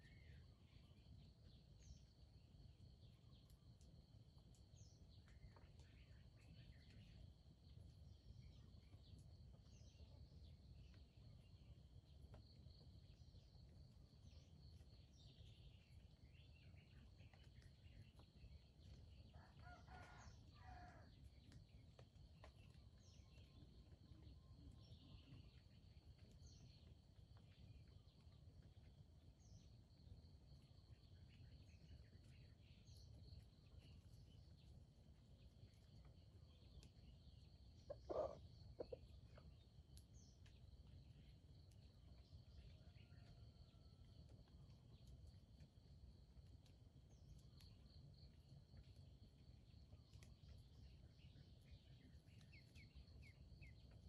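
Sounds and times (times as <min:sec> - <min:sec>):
faint bird chirps: 0:22.7 - 0:28.3, 0:35.7 - 0:43.9.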